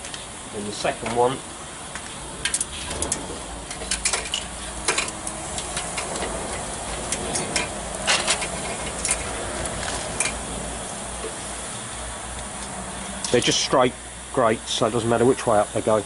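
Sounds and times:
steady hiss: 0.0s - 16.0s
metal tools clinking on grate bars: 2.4s - 9.4s.

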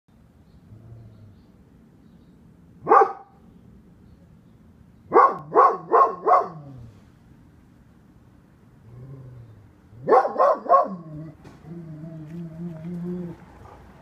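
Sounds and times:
dog barking: 2.8s - 3.4s, 5.1s - 6.8s, 10.0s - 11.1s.

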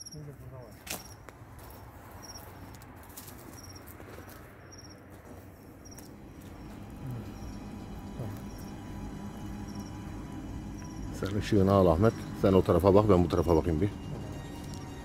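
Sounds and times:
crickets chirping: 0.0s - 15.0s
footsteps on dirt path: 0.8s - 7.6s.

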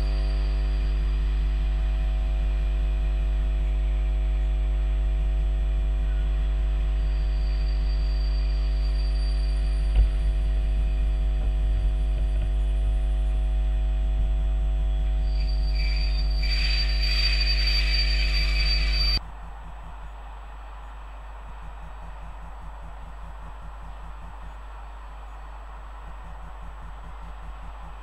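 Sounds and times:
low electrical hum: 0.0s - 28.0s
high squeal with hiss: 7.0s - 10.4s, 15.2s - 19.2s
train rolling: 15.2s - 24.6s.

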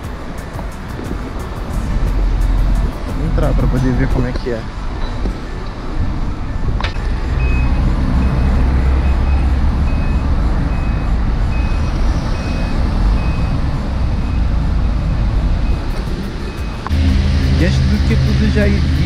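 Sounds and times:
engine rumble: 0.0s - 19.0s
street noise: 0.0s - 19.0s
reversing alarm beeping: 7.0s - 19.0s.

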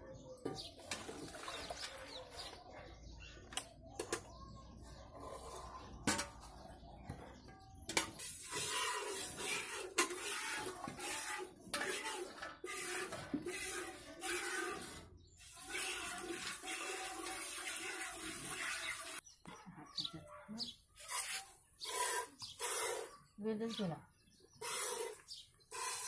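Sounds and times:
metal bucket clanks: 0.4s - 2.2s
milk squirting into pail: 0.8s - 2.2s, 8.2s - 19.2s.

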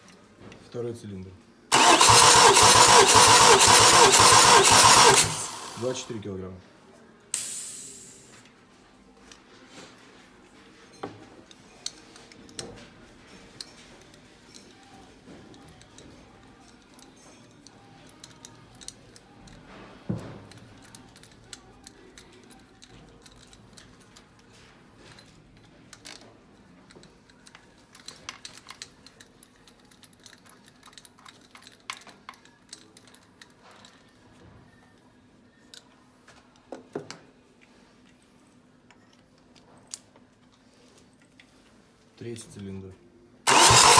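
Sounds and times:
metallic clicks of hand tools: 15.5s - 19.6s.

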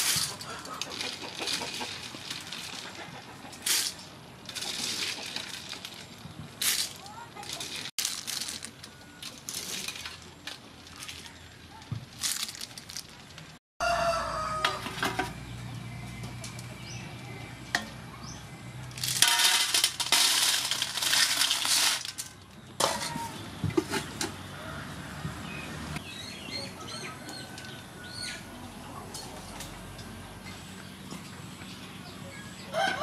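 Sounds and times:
snail shells clattering on metal: 3.6s - 11.2s, 18.9s - 23.2s
rooster crowing: 13.8s - 15.0s, 32.7s - 33.0s.

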